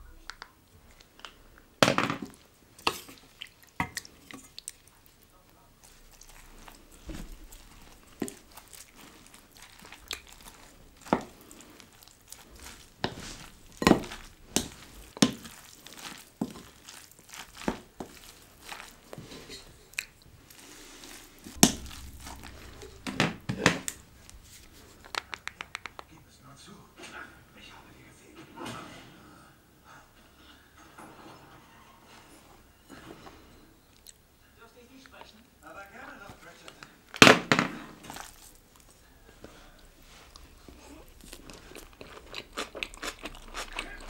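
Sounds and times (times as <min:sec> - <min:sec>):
chewing: 0:02.3 - 0:26.1, 0:33.9 - 0:34.3, 0:38.1 - 0:44.0.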